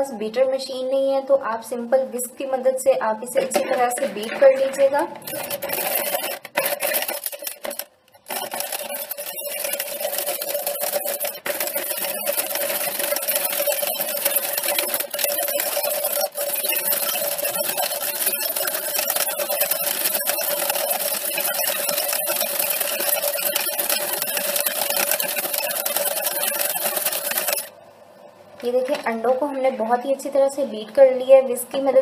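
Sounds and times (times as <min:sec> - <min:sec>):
beaters clicking against bowl: 0:03.5 - 0:27.7
hand mixer motor whir: 0:03.8 - 0:27.7.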